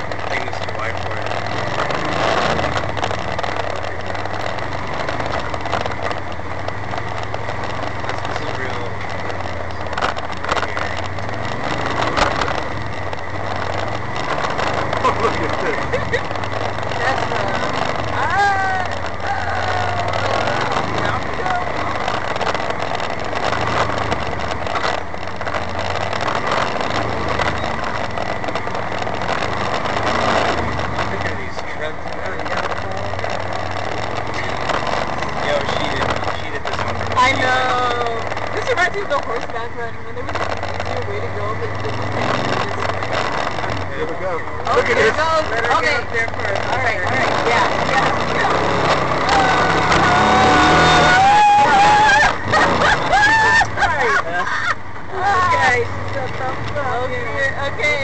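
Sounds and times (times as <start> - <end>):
faint rattles: 0.0 - 58.0
off-road vehicle engine running: 0.0 - 58.0.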